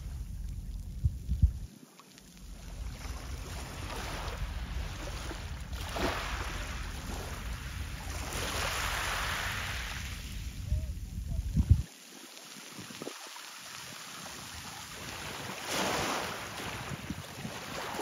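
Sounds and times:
wind buffeting microphone: 0:00.0 - 0:01.7, 0:02.5 - 0:11.9, 0:16.5 - 0:18.0
waves washing against shore: 0:01.8 - 0:18.0.

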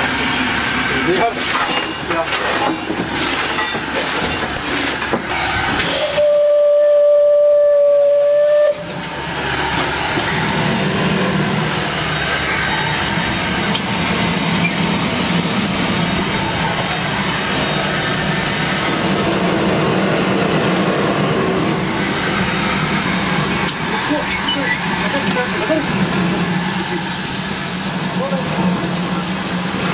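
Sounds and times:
locomotive rumbling on track: 0:00.0 - 0:29.9
steam hissing: 0:00.0 - 0:29.9
steam locomotive whistle: 0:05.8 - 0:09.0.

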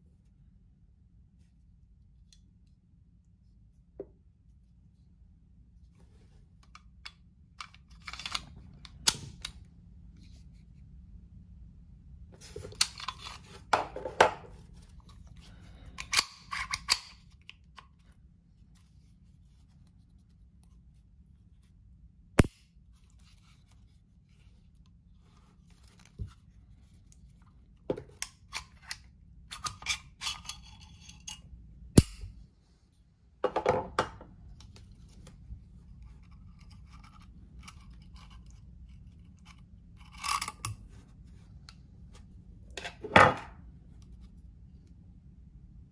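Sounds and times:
pistol metal clicks and scrapes: 0:06.6 - 0:09.6, 0:15.8 - 0:17.9, 0:28.2 - 0:31.4, 0:36.1 - 0:40.9.

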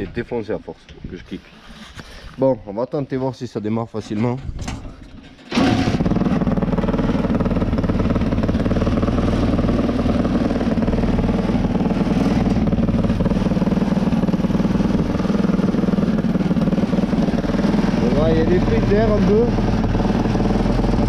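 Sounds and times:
small motorcycle engine running: 0:05.5 - 0:21.0.

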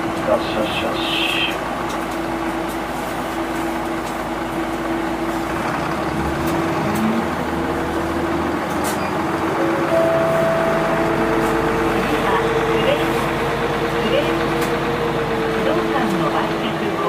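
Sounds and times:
bus engine hum: 0:00.0 - 0:17.0
higher engine tone: 0:09.3 - 0:17.0.

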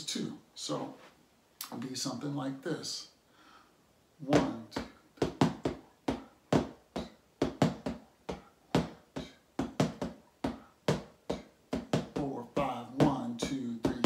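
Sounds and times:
drumsticks striking fabric surface: 0:04.3 - 0:14.0.

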